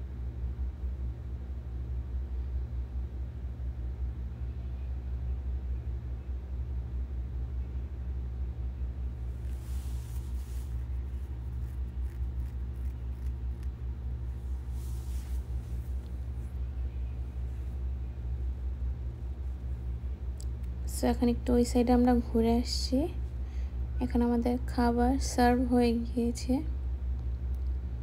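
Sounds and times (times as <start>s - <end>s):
engine rumble and hum: 0.0s - 28.0s
soft hissing rushes: 9.3s - 17.8s.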